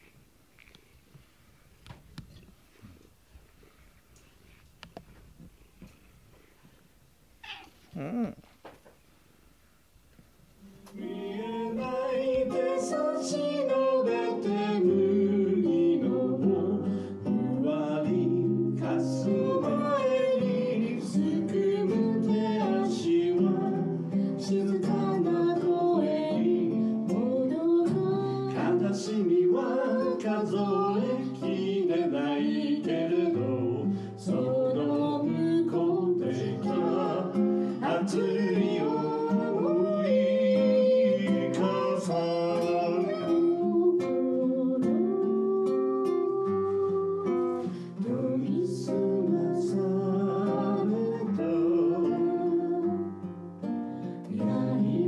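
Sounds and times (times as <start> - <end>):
acoustic guitar: 0.0 - 55.0
person singing: 7.9 - 8.4, 10.9 - 53.3, 54.3 - 55.0.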